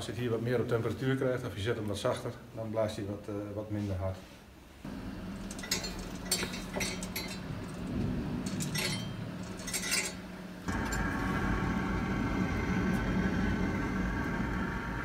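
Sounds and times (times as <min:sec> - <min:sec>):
stove blower whirring: 0:04.8 - 0:15.0
low motor hum: 0:04.9 - 0:15.0.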